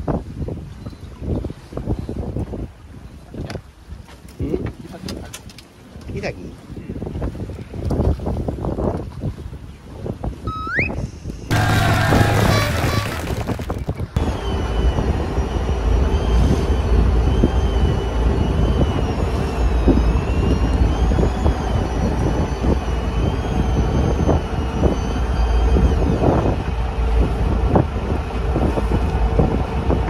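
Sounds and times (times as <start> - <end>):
wind buffeting microphone: 0.0 - 30.0
faint high whine: 11.5 - 26.6
boat engine rumbling: 11.5 - 30.0.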